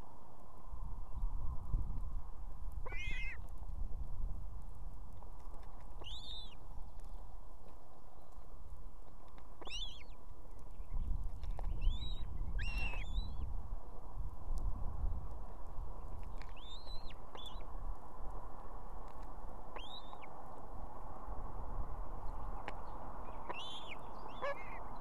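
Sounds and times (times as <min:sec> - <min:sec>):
osprey calling: 0:02.8 - 0:03.4, 0:06.0 - 0:06.6, 0:09.6 - 0:10.2, 0:23.4 - 0:24.9.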